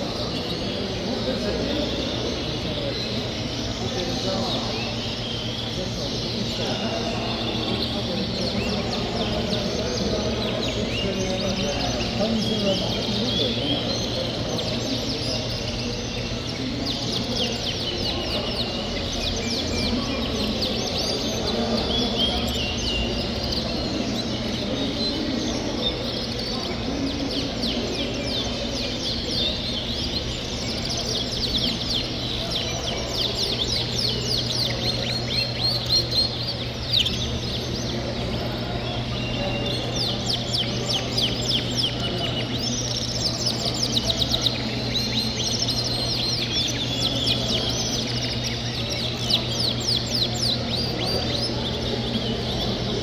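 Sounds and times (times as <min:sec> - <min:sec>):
canaries chirping and trilling: 0:00.0 - 0:53.0
steady low hum: 0:00.0 - 0:53.0.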